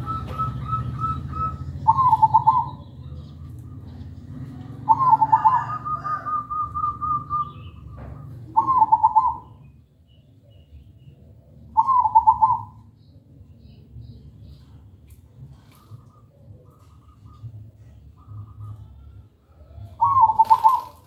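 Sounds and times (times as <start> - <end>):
dove cooing: 0.0 - 9.7, 11.7 - 12.9, 15.5 - 21.0.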